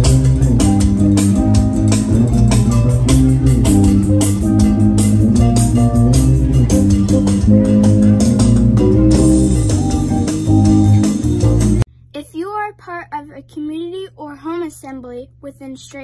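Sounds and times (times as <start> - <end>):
plucked guitar and bass music: 0.0 - 11.9.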